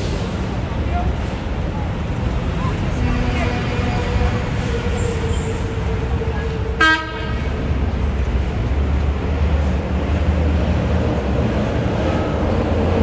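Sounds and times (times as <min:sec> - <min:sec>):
subway train rumbling: 0:00.0 - 0:13.0
short horn blast: 0:06.8 - 0:07.5.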